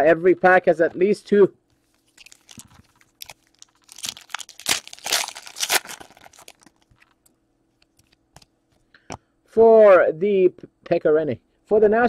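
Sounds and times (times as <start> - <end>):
wrapper tearing and crinkling: 1.9 - 7.3.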